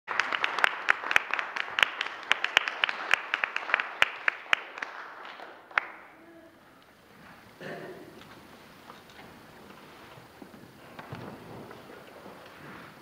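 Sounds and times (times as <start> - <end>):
audience applauding: 0.1 - 8.2.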